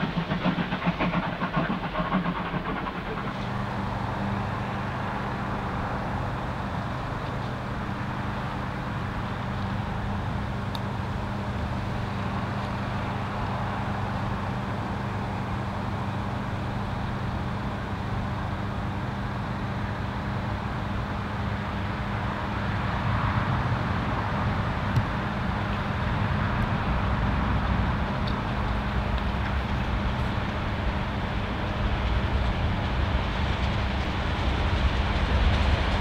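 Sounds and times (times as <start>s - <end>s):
steam locomotive droning: 0.0s - 36.0s.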